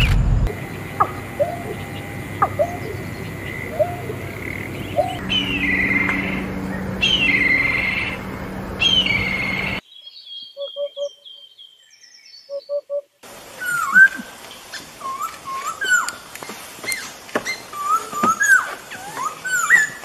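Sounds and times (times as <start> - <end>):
short rising bird notes: 0.0 - 9.8
steady high tone: 0.0 - 9.8.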